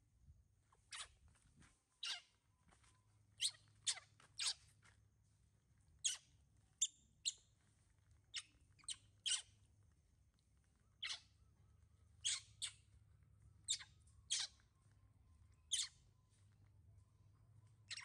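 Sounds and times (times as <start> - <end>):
high-pitched animal chirps: 2.0 - 2.3, 3.4 - 4.6, 6.0 - 7.4, 8.3 - 9.6, 11.0 - 11.4, 12.2 - 12.9, 13.6 - 14.7, 15.6 - 16.0.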